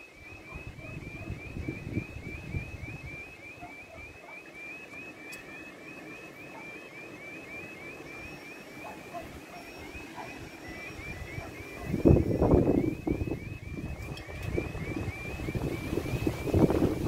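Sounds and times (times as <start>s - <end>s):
level crossing electronic alarm: 0.0s - 17.0s
wind rumble on microphone: 0.2s - 3.7s, 11.0s - 17.0s.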